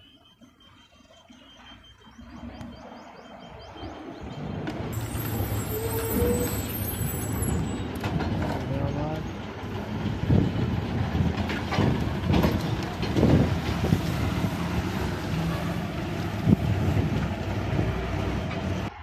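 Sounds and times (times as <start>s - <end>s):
bus diesel engine droning: 1.6s - 19.0s
rattles and knocks: 7.9s - 13.9s.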